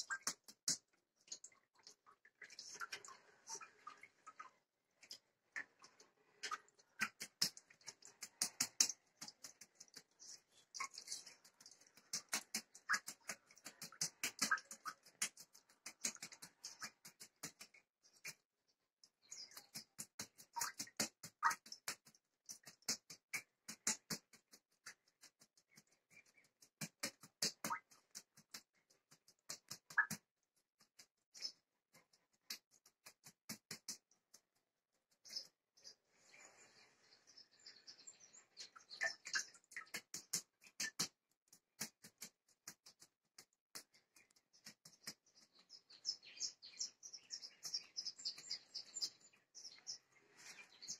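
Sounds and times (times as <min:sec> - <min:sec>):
hands squelching soft butter: 0:05.6 - 0:18.5.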